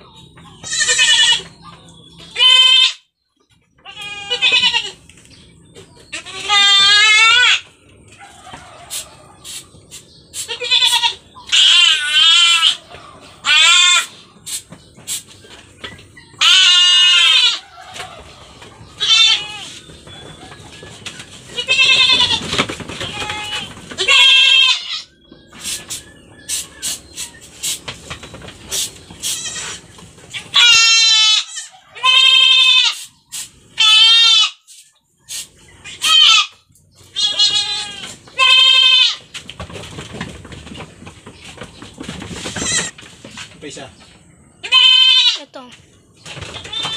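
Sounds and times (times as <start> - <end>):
goat kids bleating: 0.5 - 1.6, 2.3 - 3.1, 3.8 - 5.1, 6.0 - 7.8, 10.3 - 14.2, 16.4 - 18.3, 18.9 - 19.9, 21.5 - 25.2, 29.1 - 33.1, 33.7 - 34.7, 35.8 - 39.4, 42.4 - 43.0, 44.6 - 45.8, 46.5 - 46.9.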